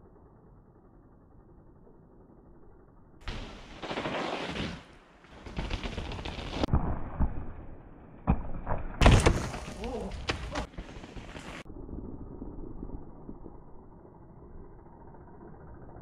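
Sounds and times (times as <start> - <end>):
bike tyres on dirt: 3.2 - 7.5, 9.0 - 11.7
bike knocking and rattling: 5.3 - 6.6.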